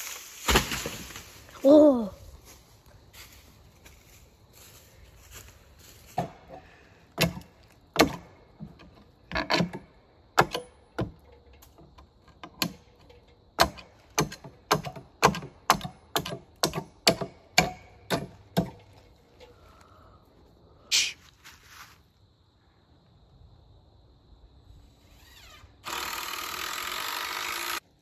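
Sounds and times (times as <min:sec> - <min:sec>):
hammer striking wood: 0:07.2 - 0:08.8, 0:10.4 - 0:11.2, 0:13.6 - 0:18.8.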